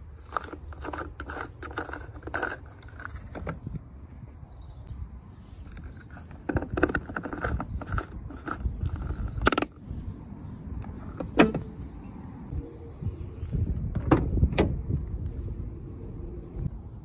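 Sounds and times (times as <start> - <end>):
fuel door clicking shut: 14.0 - 14.8.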